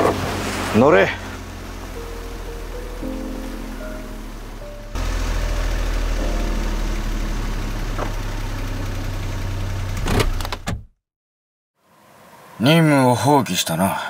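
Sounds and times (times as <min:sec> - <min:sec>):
car engine idling: 0:00.0 - 0:10.6.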